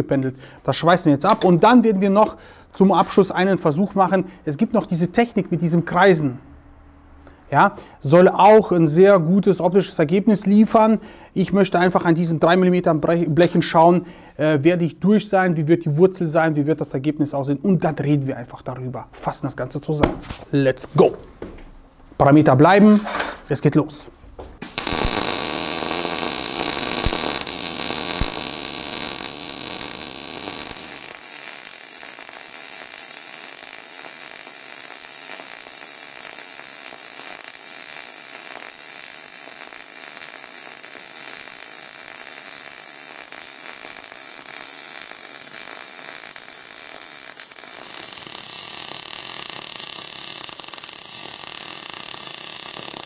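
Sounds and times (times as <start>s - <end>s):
welding arc hissing: 24.6s - 53.0s.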